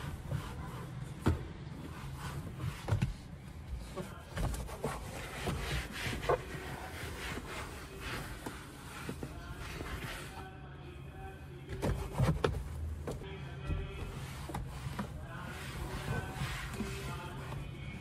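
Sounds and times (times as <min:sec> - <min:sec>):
towel wiping surfaces: 0:04.6 - 0:10.4, 0:14.0 - 0:17.6.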